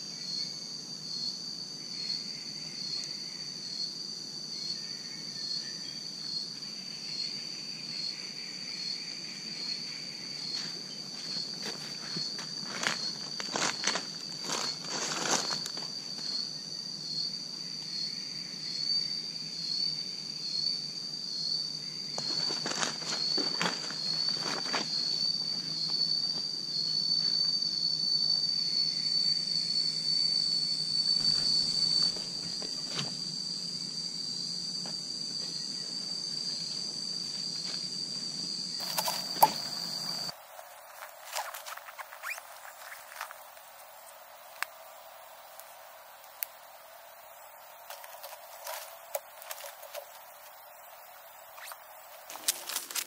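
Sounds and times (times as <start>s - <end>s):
insects droning: 0.0s - 53.0s
footsteps crunching dry leaves: 11.1s - 16.0s, 38.8s - 44.2s, 47.8s - 50.6s, 52.2s - 53.0s.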